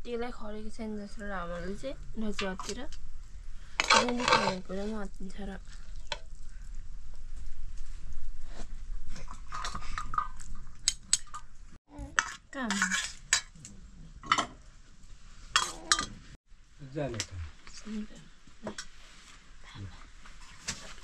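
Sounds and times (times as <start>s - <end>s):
metal spoon scraping a pan: 3.8s - 5.0s, 12.1s - 14.6s
food sizzling: 3.8s - 7.8s
dishes and cutlery clinking: 14.2s - 14.6s, 15.6s - 16.2s.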